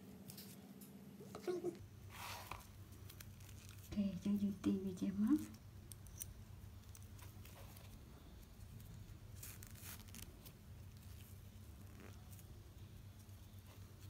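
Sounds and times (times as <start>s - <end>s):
low steady hum: 0.0s - 14.0s
cord rustling and scraping: 2.0s - 4.0s, 5.1s - 14.0s.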